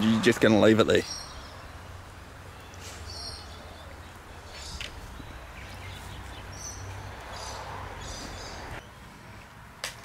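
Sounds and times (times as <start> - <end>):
high bird chirps: 1.0 - 8.6.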